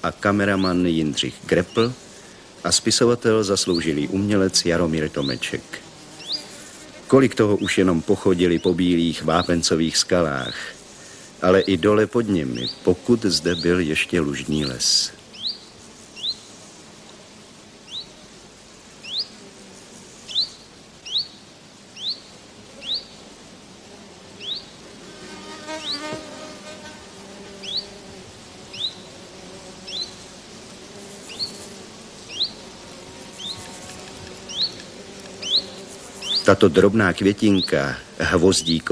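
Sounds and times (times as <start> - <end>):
lower buzzy animal call: 23.9 - 30.3.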